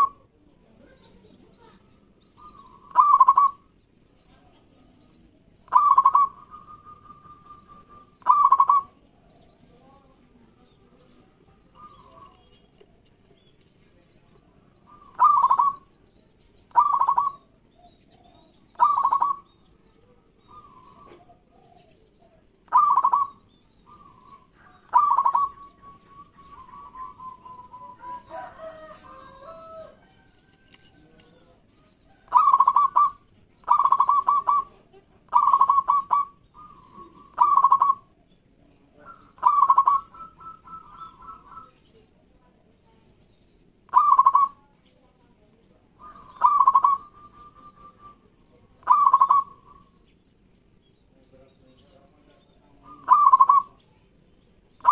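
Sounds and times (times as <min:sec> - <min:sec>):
dove cooing: 0:02.4 - 0:03.8, 0:05.6 - 0:09.6, 0:11.4 - 0:12.5, 0:14.8 - 0:15.9, 0:16.7 - 0:19.5, 0:20.3 - 0:38.3, 0:39.0 - 0:41.8, 0:43.9 - 0:44.6, 0:46.0 - 0:50.0, 0:52.7 - 0:53.8
softer lower calling: 0:45.9 - 0:50.1.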